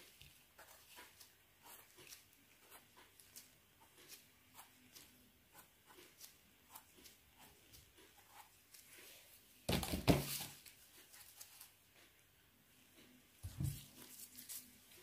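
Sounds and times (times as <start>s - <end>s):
faint crackling and rustling: 12.8s - 15.0s.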